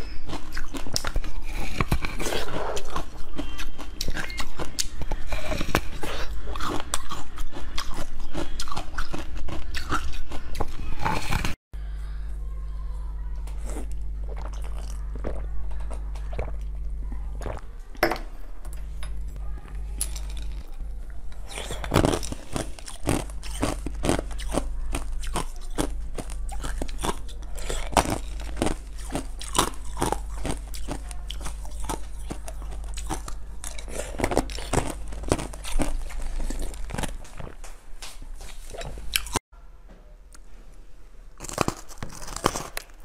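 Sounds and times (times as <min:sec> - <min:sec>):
crunching and chewing ice: 0:00.0 - 0:11.6, 0:13.4 - 0:17.7, 0:19.2 - 0:37.6, 0:38.4 - 0:39.4, 0:41.4 - 0:43.0.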